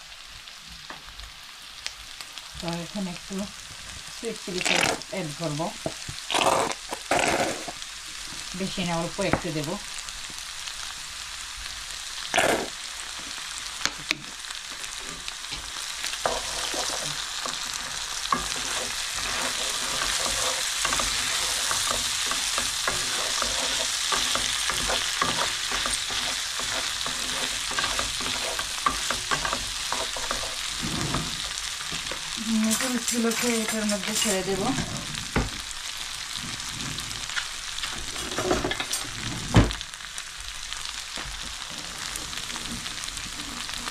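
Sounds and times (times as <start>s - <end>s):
food sizzling in a wok: 0.0s - 43.9s
spatula scraping and tapping pan: 14.9s - 34.8s.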